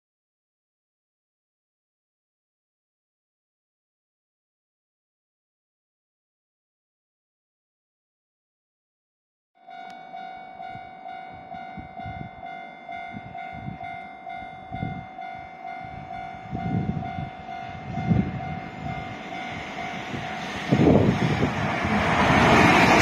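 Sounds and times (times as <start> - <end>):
level-crossing bell chimes: 9.6 - 20.4
freight train passing: 9.6 - 23.0.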